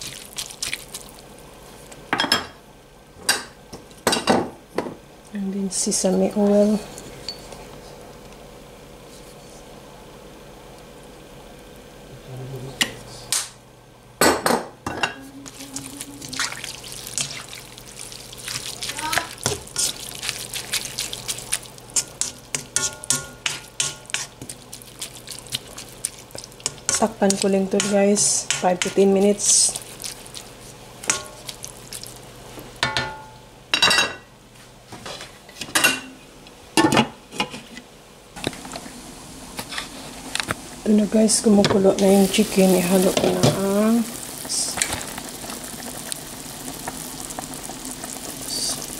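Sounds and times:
low steady hum: 0:00.0 - 0:34.6, 0:35.6 - 0:48.9
spatula scraping a wok: 0:19.4 - 0:20.1, 0:21.9 - 0:24.6
tongs clacking against a wok: 0:31.0 - 0:31.4.

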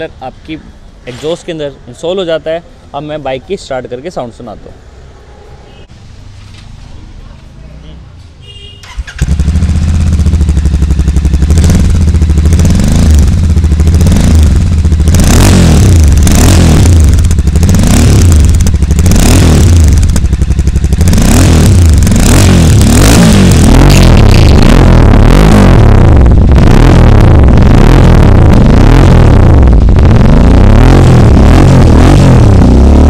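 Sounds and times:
motorcycle engine revving: 0:08.8 - 0:33.0.

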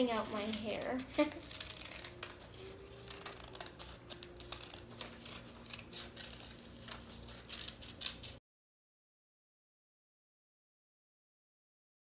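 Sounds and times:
scissors snipping paper: 0:00.0 - 0:08.4.

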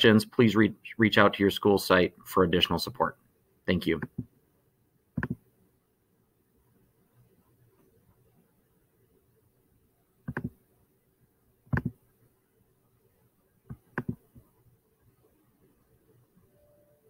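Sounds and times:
laptop button clicks: 0:10.3 - 0:10.5, 0:11.7 - 0:11.9.

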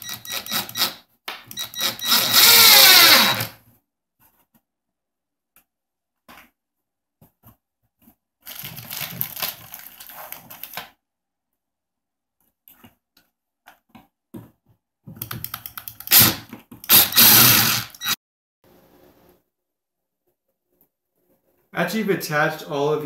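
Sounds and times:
cordless driver whirring: 0:00.0 - 0:03.6, 0:16.1 - 0:18.2
plastic bag crinkling: 0:08.4 - 0:10.9.

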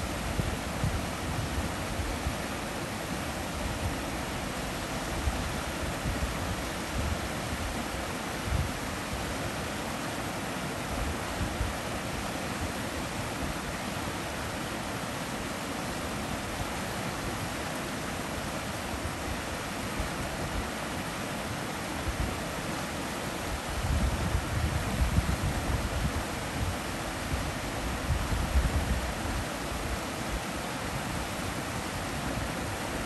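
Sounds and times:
stream rushing over stones: 0:00.0 - 0:33.0.

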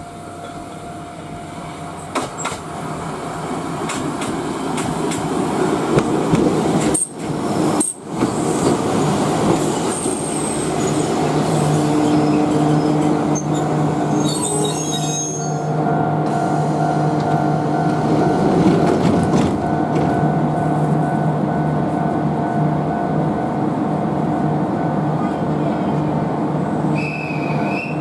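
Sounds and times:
train electrical hum: 0:00.0 - 0:28.0
train brakes squealing: 0:06.9 - 0:15.7, 0:26.9 - 0:28.0.

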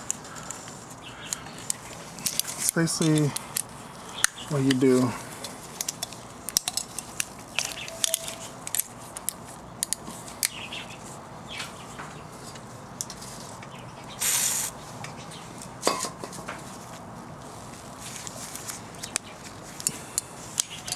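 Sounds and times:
aerosol spray hiss: 0:14.2 - 0:14.7.

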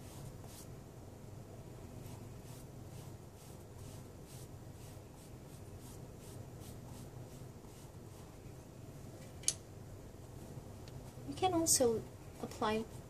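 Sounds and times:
paintbrush scratchy swishes: 0:00.0 - 0:00.7, 0:02.0 - 0:08.4.

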